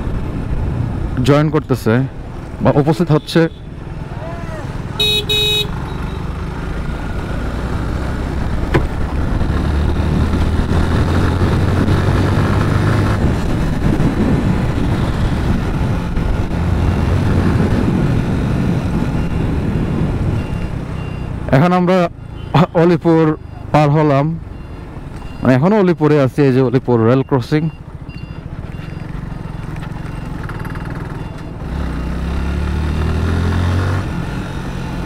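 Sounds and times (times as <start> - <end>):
road rumble: 0.0 - 35.0
motorcycle engine hum: 1.8 - 25.4, 26.8 - 35.0
wind noise: 8.3 - 20.8.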